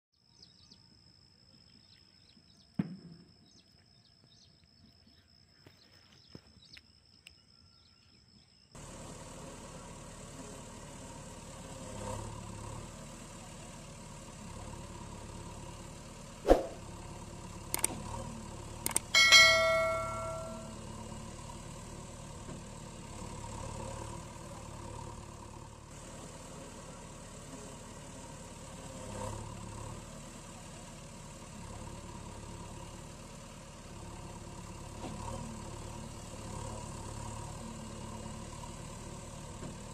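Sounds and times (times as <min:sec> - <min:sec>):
clicks: 0:17.7 - 0:18.0, 0:18.8 - 0:20.6.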